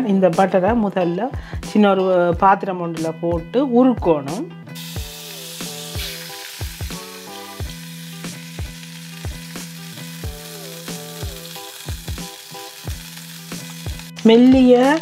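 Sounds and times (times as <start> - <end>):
background music with drum beat: 0.6 - 15.0
butter sizzling in a saucepan: 4.8 - 15.0.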